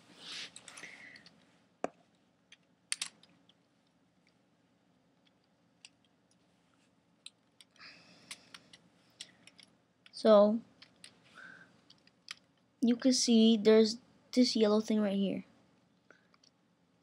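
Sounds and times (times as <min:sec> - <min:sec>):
soft rustling: 0:00.0 - 0:01.7, 0:06.4 - 0:07.0
plastic pieces clicking: 0:02.5 - 0:03.6, 0:07.2 - 0:10.2, 0:11.8 - 0:12.6.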